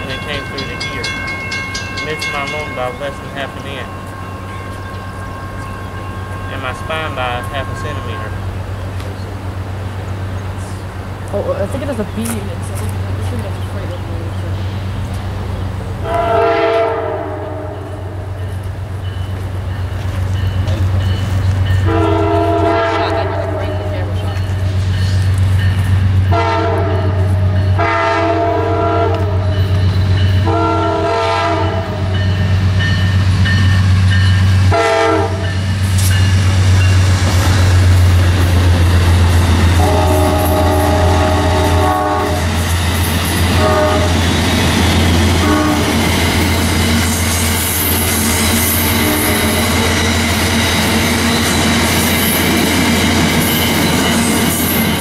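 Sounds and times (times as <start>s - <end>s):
train wheel clatter: 0.0s - 8.0s, 35.4s - 55.0s
train rumble: 0.0s - 55.0s
train horn blasts: 3.7s - 8.5s, 16.0s - 18.4s, 21.8s - 24.3s, 26.3s - 29.8s, 30.4s - 32.3s, 34.5s - 35.6s, 39.7s - 42.6s, 43.5s - 44.3s, 45.2s - 50.0s.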